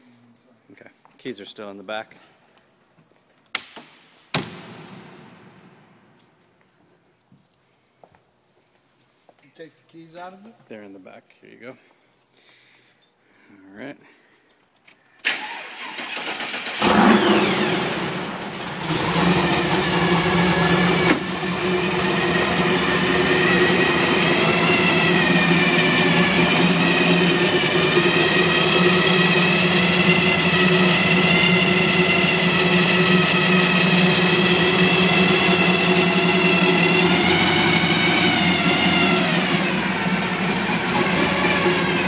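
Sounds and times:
starter cranking engine: 15.2s - 42.0s
car engine revving and idling: 16.5s - 42.0s.

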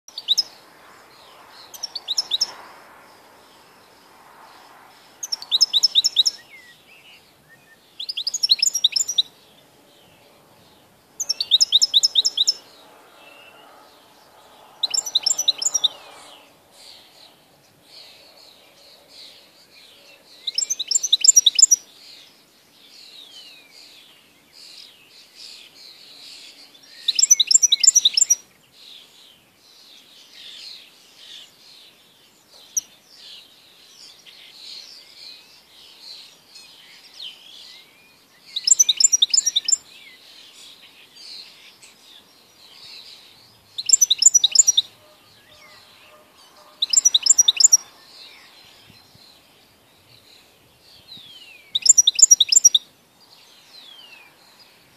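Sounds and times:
bird twittering: 0.1s - 0.6s, 1.2s - 2.6s, 5.2s - 9.4s, 10.0s - 17.4s, 20.4s - 21.8s, 27.0s - 28.4s, 38.5s - 39.8s, 43.6s - 49.2s, 51.2s - 52.9s.

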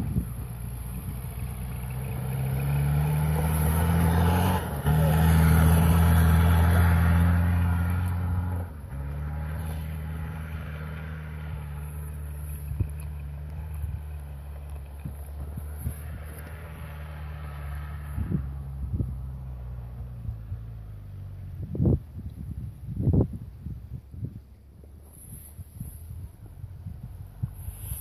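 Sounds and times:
suv engine revving: 0.0s - 22.0s.

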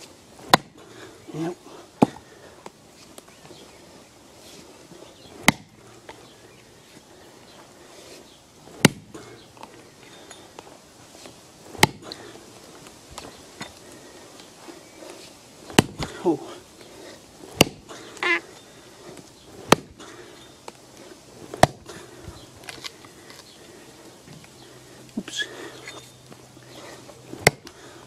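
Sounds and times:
axe chopping stump: 0.4s - 0.8s, 2.0s - 2.2s, 5.4s - 5.8s, 8.7s - 9.2s, 11.7s - 12.2s, 15.7s - 16.3s, 17.5s - 18.0s, 19.2s - 20.1s, 21.5s - 22.0s, 27.3s - 27.8s.

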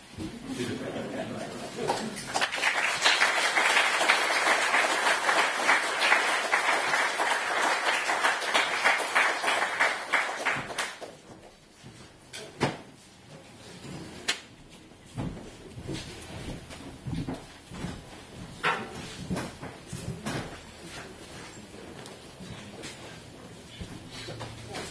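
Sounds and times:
audience applauding: 1.8s - 11.2s.

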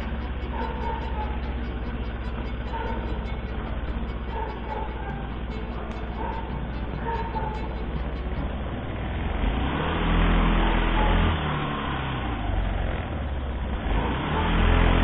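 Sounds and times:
vehicle engine rumble: 0.0s - 15.0s.

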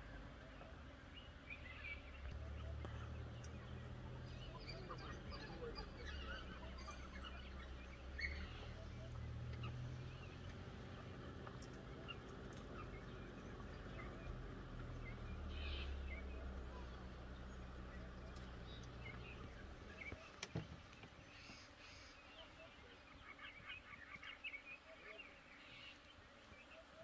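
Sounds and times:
low steady hum: 0.0s - 20.3s
high chirping calls: 0.3s - 20.4s.

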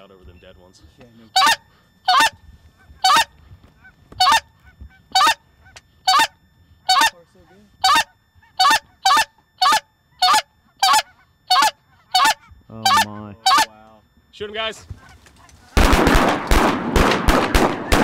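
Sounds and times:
goose honking: 1.3s - 13.8s, 15.0s - 15.8s.

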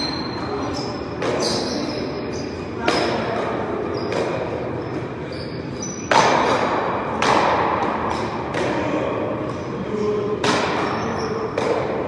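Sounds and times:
sneakers squeaking on court: 0.0s - 6.6s, 10.8s - 11.7s
paddle hitting rubber ball: 6.1s - 8.9s, 10.4s - 12.0s.

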